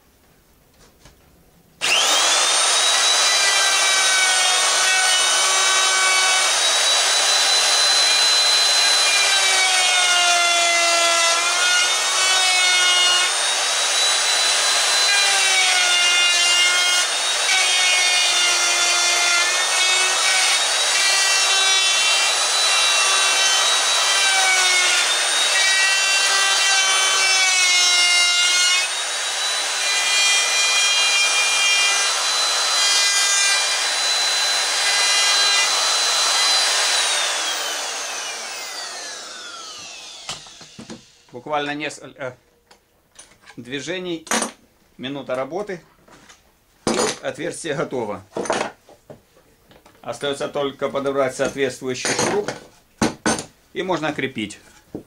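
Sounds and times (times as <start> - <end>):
router whining and milling wood: 1.8 - 41.4.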